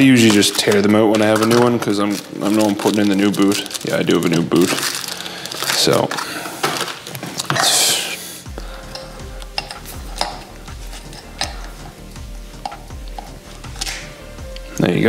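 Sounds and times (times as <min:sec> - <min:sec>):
plastic packet crinkling: 0:00.0 - 0:08.2, 0:08.8 - 0:14.1
background music with steady beat: 0:00.0 - 0:15.0.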